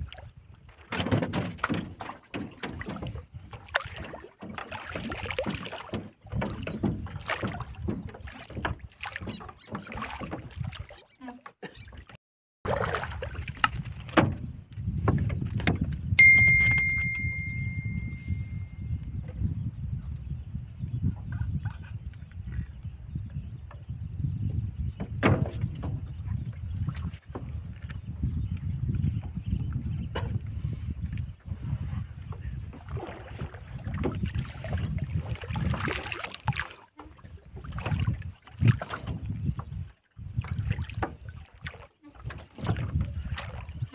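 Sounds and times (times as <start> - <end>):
water lapping against boat hull: 0.0 - 43.9
wind buffeting microphone: 12.8 - 36.0, 37.4 - 41.3, 42.2 - 43.9
bright bell ding: 16.2 - 19.0.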